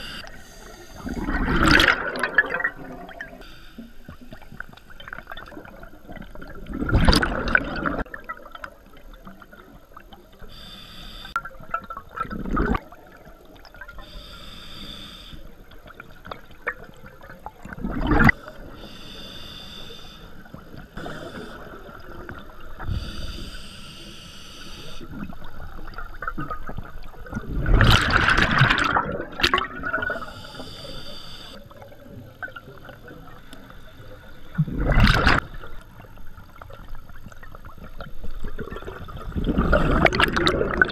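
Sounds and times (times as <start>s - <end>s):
regulator hiss on inhale: 0.0s - 1.3s, 3.4s - 5.0s, 10.4s - 11.4s, 14.0s - 15.6s, 18.4s - 22.0s, 22.8s - 25.1s, 30.2s - 31.6s
exhaled bubbles gushing: 1.0s - 3.4s, 4.3s - 10.2s, 11.4s - 14.0s, 15.8s - 18.4s, 25.0s - 30.3s, 34.5s - 40.9s.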